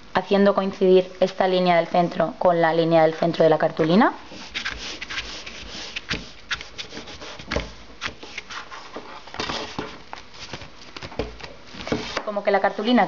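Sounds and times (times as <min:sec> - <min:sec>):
paper rustling and rubbing: 0:04.3 - 0:12.2.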